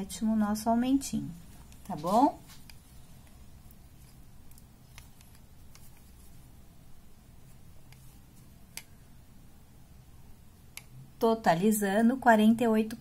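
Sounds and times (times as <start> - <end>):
low steady hum: 0.0 - 13.0
crochet hook ticking: 10.7 - 11.0.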